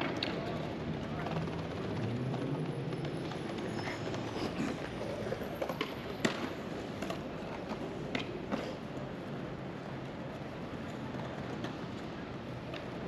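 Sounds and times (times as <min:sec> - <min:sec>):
city background hum: 0:00.0 - 0:13.0
skateboard clacking on stone: 0:04.1 - 0:08.7.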